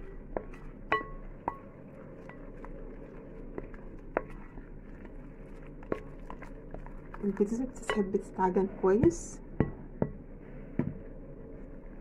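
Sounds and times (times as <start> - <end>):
spoon scraping and squishing batter: 0.0 - 9.3.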